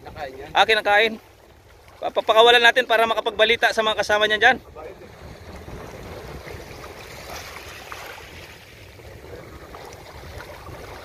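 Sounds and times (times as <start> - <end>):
small waves lapping: 0.0 - 11.0
water sloshing in shallows: 0.0 - 11.0
wind rumble on microphone: 3.4 - 11.0.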